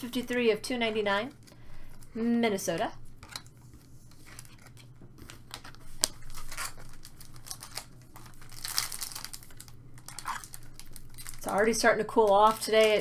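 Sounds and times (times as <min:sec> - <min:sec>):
foil pack crinkling: 0:03.2 - 0:13.0.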